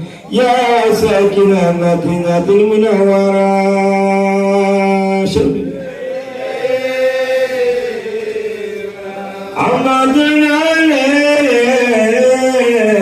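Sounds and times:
man chanting through a microphone: 0:00.0 - 0:05.8, 0:09.3 - 0:13.0.

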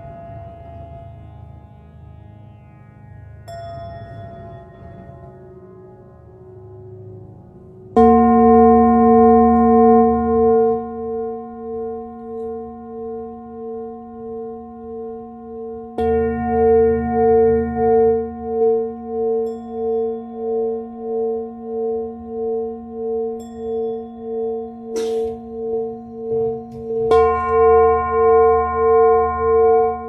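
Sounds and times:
singing bowl ringing: 0:08.0 - 0:30.0.

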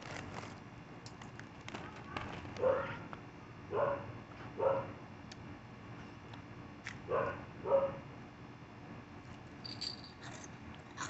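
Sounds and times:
dog barking: 0:02.6 - 0:03.0, 0:03.7 - 0:05.0, 0:07.1 - 0:08.0.

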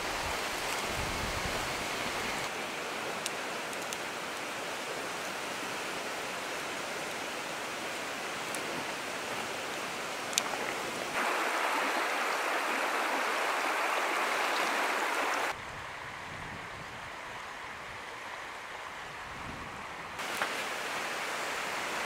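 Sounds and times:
river water rushing over stones: 0:00.0 - 0:15.6, 0:20.2 - 0:22.0.

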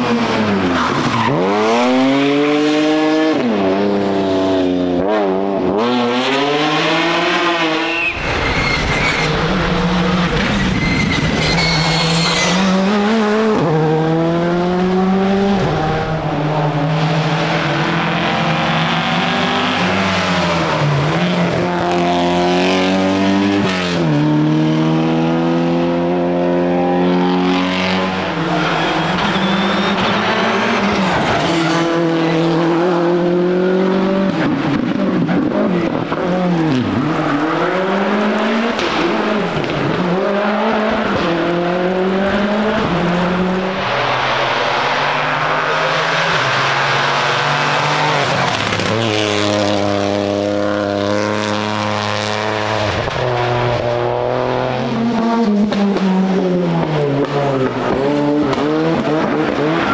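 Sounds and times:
rally car engines revving: 0:00.0 - 0:59.9
tyres squealing: 0:10.3 - 0:12.8.

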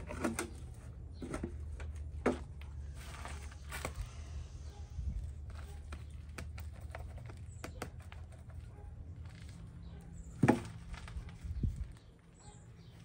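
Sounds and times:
soil crackling and rustling: 0:00.0 - 0:13.0.

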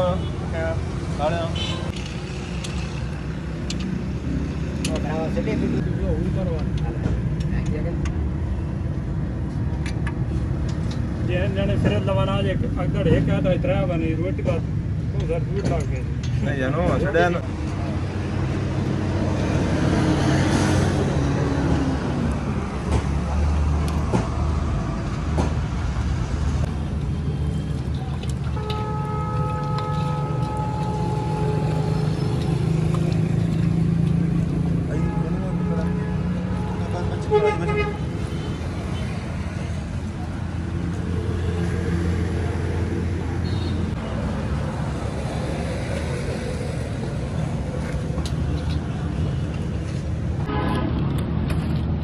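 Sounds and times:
road traffic rumble: 0:00.0 - 0:52.0.

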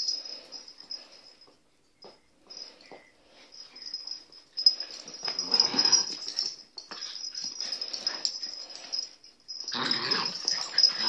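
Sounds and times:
dogs growling and huffing: 0:04.8 - 0:11.0.

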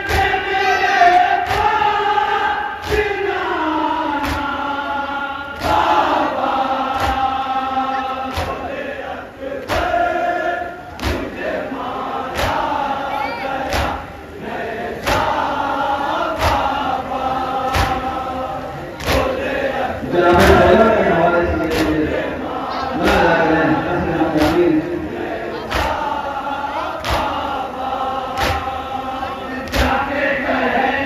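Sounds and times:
men chanting in unison: 0:00.0 - 0:31.0
chest-beating slaps: 0:01.4 - 0:01.8, 0:04.2 - 0:04.6, 0:06.9 - 0:07.3, 0:08.3 - 0:08.7, 0:11.0 - 0:11.3, 0:12.3 - 0:12.6, 0:13.7 - 0:14.0, 0:16.4 - 0:16.7, 0:17.7 - 0:18.1, 0:19.0 - 0:19.5, 0:21.6 - 0:22.2, 0:24.3 - 0:24.8, 0:25.7 - 0:26.1, 0:27.0 - 0:27.5, 0:28.3 - 0:28.8, 0:29.6 - 0:30.0.

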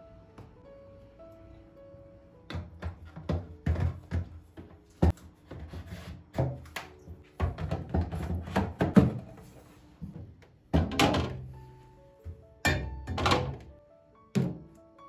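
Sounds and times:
soft background music: 0:00.0 - 0:15.0
plastic fridge bins clicking: 0:12.7 - 0:13.7.

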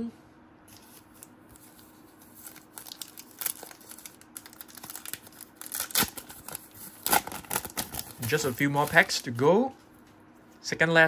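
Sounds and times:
wrapper crinkling: 0:00.7 - 0:09.4.

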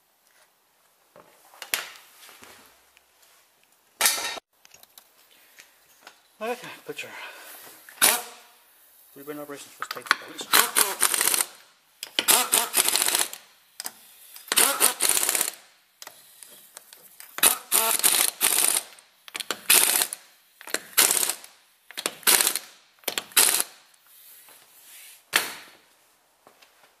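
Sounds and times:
impact wrench rattling: 0:08.0 - 0:08.4, 0:09.8 - 0:15.6, 0:17.4 - 0:23.8.

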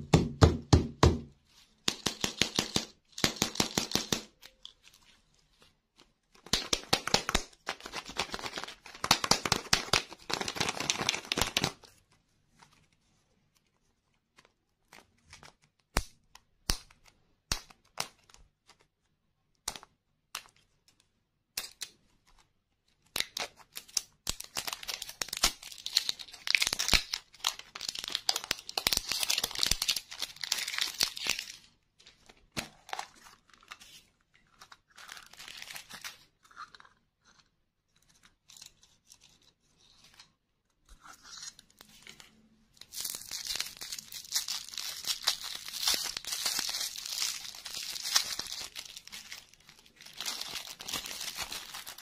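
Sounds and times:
plastic wrapper crinkling and tearing: 0:06.3 - 0:12.0, 0:23.0 - 0:37.0, 0:41.0 - 0:52.0.

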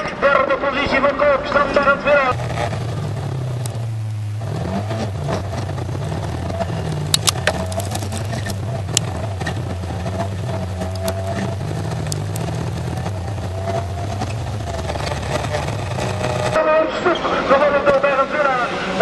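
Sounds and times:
racing car engine: 0:00.0 - 0:19.0
sharp clicks: 0:03.6 - 0:03.8, 0:05.3 - 0:16.6.

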